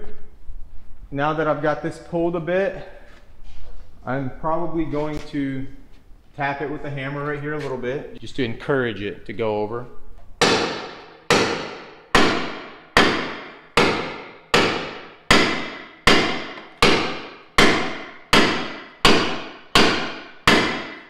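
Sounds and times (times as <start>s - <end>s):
hammer striking metal frame: 10.4s - 21.0s.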